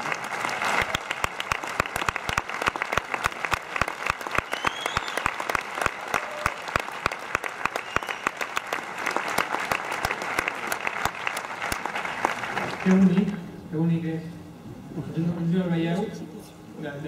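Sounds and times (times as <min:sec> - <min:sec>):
close sharp hand claps: 0:00.0 - 0:13.0
audience applauding: 0:00.0 - 0:13.2.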